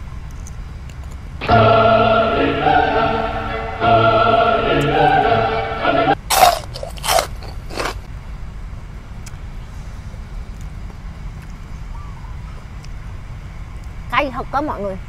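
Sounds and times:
loud noisy bursts: 0:01.4 - 0:06.2
operatic choir-like singing: 0:01.4 - 0:06.2.

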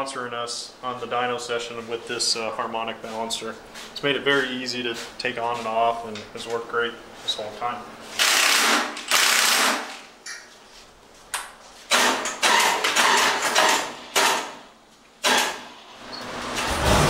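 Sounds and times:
impact wrench hammering: 0:11.9 - 0:14.6.

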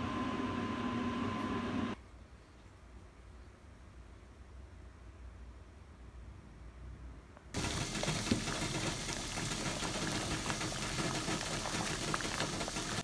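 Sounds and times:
water boiling and bubbling: 0:07.6 - 0:13.0.

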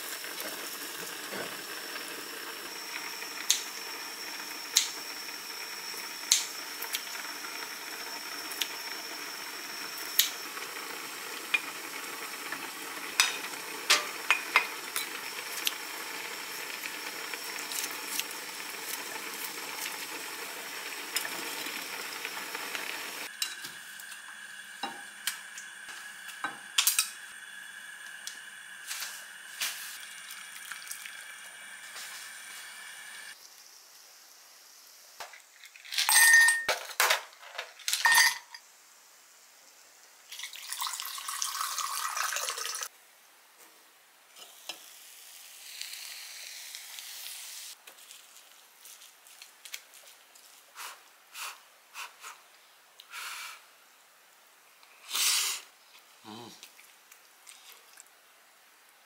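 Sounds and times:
food sizzling in pans: 0:00.0 - 0:35.7, 0:44.3 - 0:52.3.

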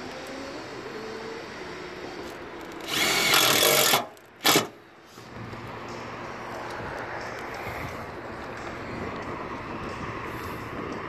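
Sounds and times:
cordless drill driving screw: 0:02.6 - 0:04.7.

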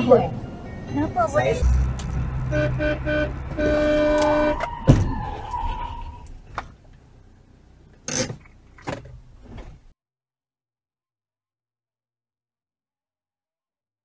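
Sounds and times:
loud thud: 0:01.6 - 0:05.8
car horn blasts: 0:01.6 - 0:06.2.

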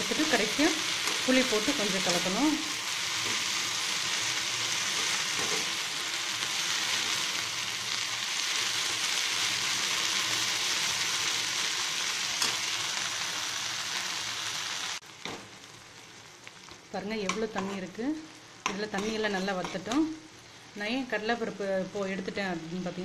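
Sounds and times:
herbs sizzling in oil: 0:00.0 - 0:23.0
metal spoon stirring in pan: 0:00.1 - 0:02.3, 0:03.0 - 0:05.9, 0:17.2 - 0:17.9, 0:18.6 - 0:20.2.

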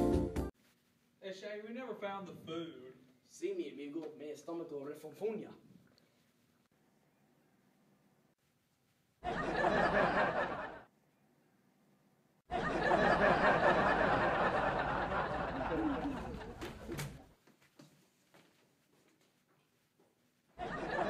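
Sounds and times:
laughter: 0:09.2 - 0:10.9, 0:12.5 - 0:17.0, 0:20.6 - 0:21.0.

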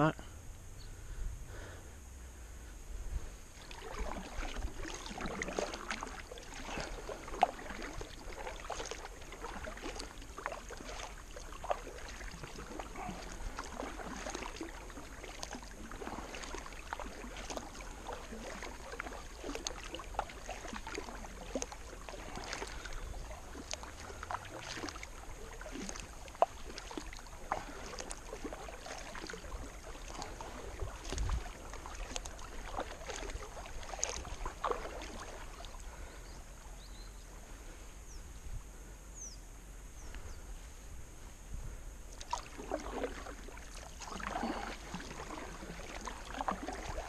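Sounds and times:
kayak paddle splashing: 0:01.5 - 0:38.2, 0:42.0 - 0:47.0
water dripping: 0:03.6 - 0:36.1, 0:42.2 - 0:47.0.

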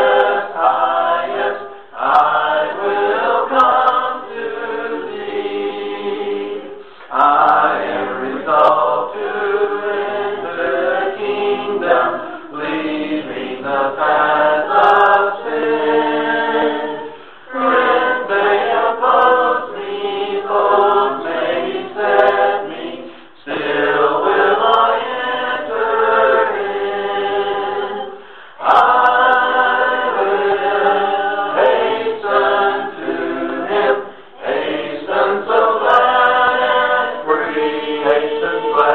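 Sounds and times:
group singing a hymn: 0:00.0 - 0:38.9.

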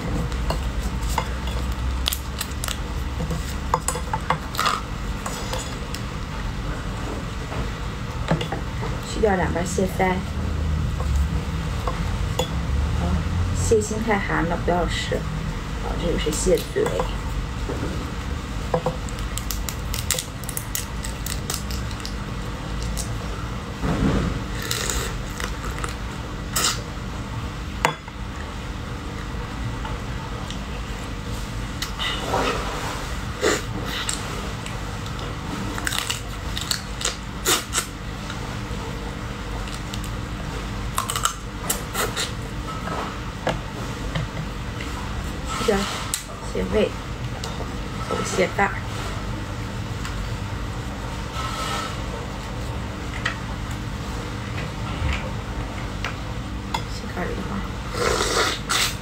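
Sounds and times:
crab shell cracking: 0:19.0 - 0:23.1.

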